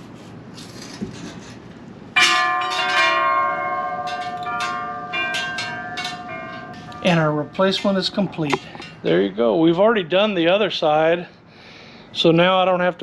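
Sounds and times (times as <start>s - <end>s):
bells ringing: 2.2s - 9.1s.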